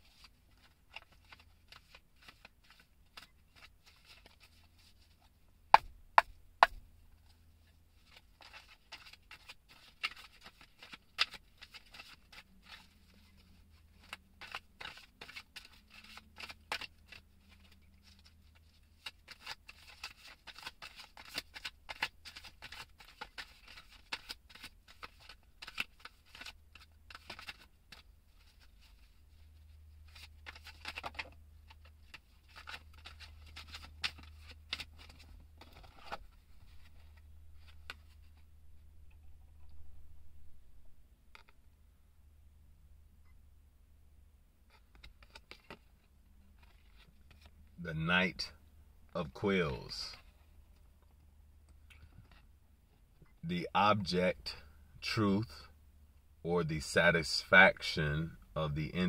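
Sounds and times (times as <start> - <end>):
cards being shuffled: 0.0 - 5.2, 7.9 - 38.5, 44.7 - 47.5.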